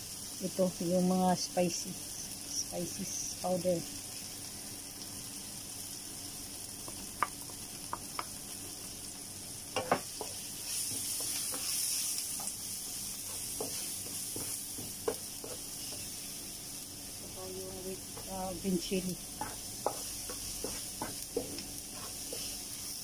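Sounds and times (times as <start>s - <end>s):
vegetables sizzling in a frying pan: 0.0s - 23.0s
wooden spoon knocking a pan: 9.8s - 11.7s, 13.3s - 16.1s, 19.4s - 21.6s.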